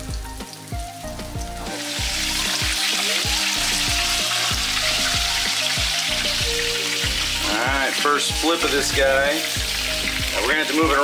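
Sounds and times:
fish frying in hot oil: 0.0s - 11.0s.

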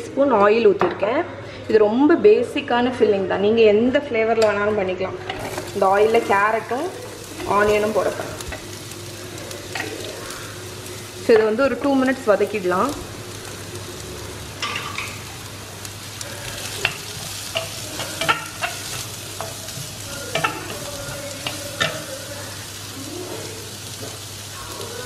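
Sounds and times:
vegetables sizzling in hot oil: 5.2s - 25.0s.

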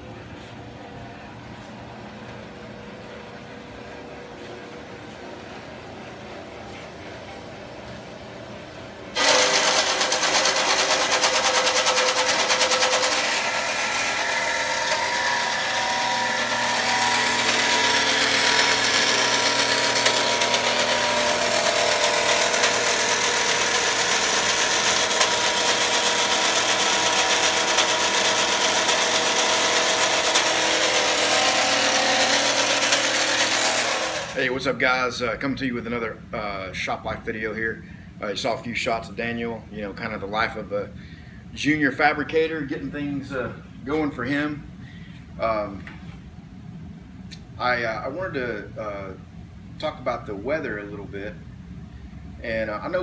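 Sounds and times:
bandsaw cutting metal: 9.2s - 34.5s.

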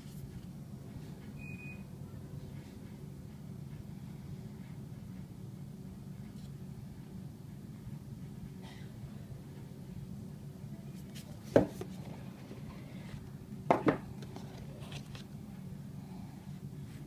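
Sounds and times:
steady low hum: 0.0s - 17.0s
boxes knocking on table: 11.5s - 11.9s, 13.7s - 14.1s.

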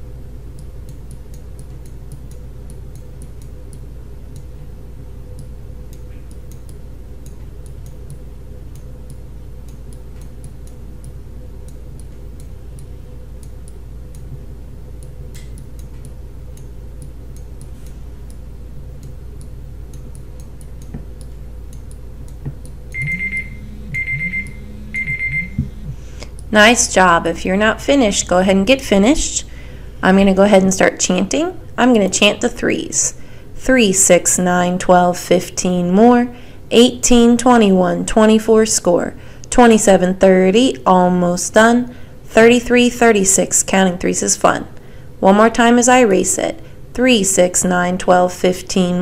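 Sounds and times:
faint steady ticking: 0.0s - 26.6s
low electrical hum: 0.0s - 49.0s
alarm beeping in short pulses: 22.9s - 25.8s.

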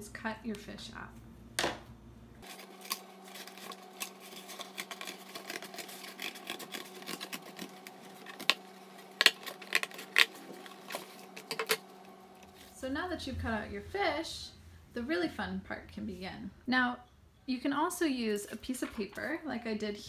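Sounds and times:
scissors cutting cardboard: 2.4s - 11.8s.

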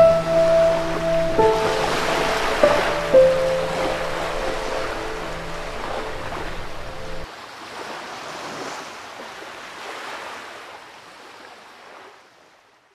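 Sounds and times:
music: 0.0s - 7.3s
surf washing on shore: 0.0s - 12.6s.

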